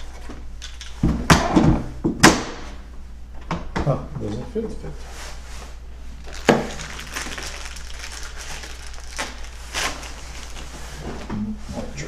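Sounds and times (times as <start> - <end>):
tools rustling and scraping: 0.0 - 1.1.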